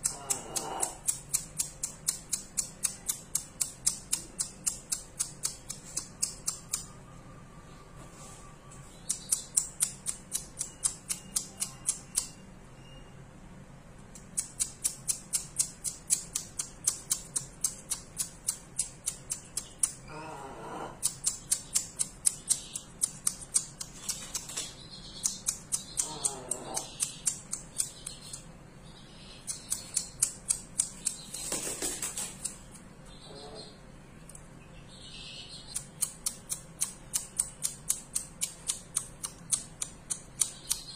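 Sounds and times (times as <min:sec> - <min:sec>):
rapid sharp high clicking: 0:00.0 - 0:06.9, 0:09.0 - 0:12.4, 0:14.1 - 0:20.1, 0:21.0 - 0:28.6, 0:29.4 - 0:32.9, 0:35.6 - 0:40.9.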